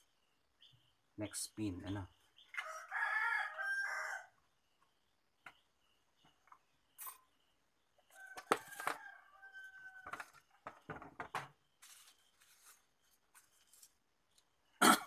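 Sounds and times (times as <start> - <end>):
rooster crowing: 2.6 - 4.4, 8.1 - 10.4.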